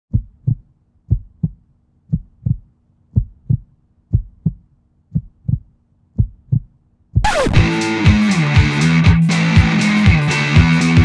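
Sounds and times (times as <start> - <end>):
heartbeat thumps: 0.1 - 7.7.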